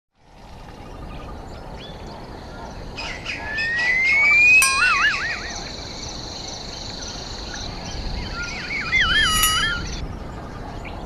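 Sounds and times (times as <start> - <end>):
birds warbling whistles: 3.0 - 10.0.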